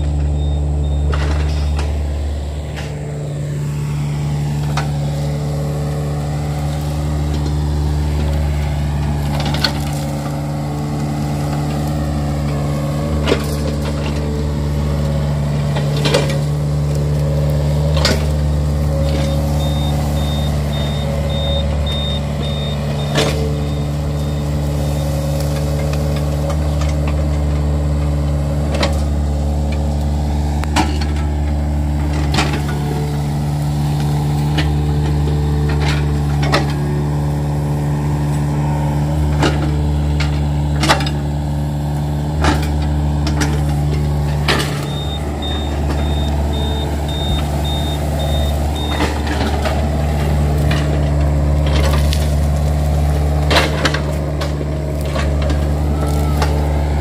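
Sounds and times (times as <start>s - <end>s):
excavator diesel engine: 0.0s - 57.0s.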